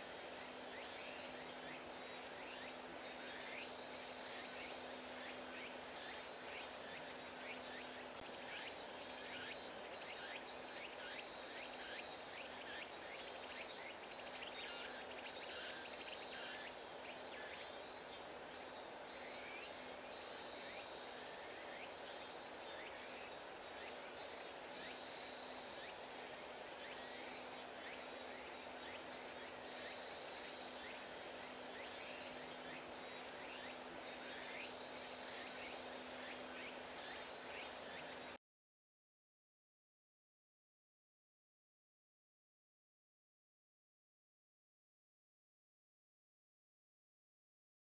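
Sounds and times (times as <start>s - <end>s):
insects chirping in pulsed trills: 0.0s - 38.4s.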